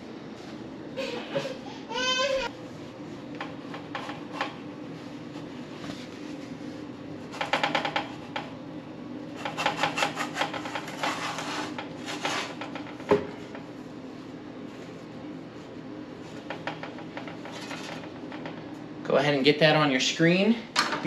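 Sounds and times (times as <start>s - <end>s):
steady low hum: 0.0s - 21.0s
metal peel rattling on oven rack: 9.4s - 13.0s.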